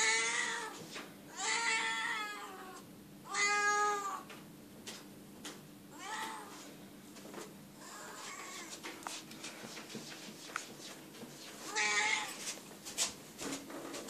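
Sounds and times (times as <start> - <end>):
cat meowing: 0.0 - 4.2, 5.9 - 6.6, 11.7 - 12.4.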